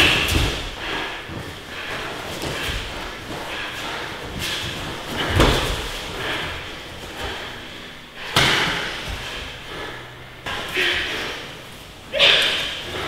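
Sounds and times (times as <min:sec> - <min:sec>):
heavy thud on gym mats: 0:00.0 - 0:07.5, 0:08.2 - 0:09.5.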